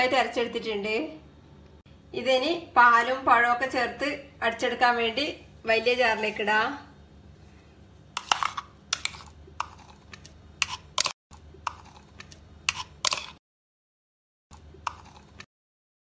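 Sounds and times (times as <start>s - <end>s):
paste scraped from jar: 8.2s - 11.1s, 11.7s - 13.4s.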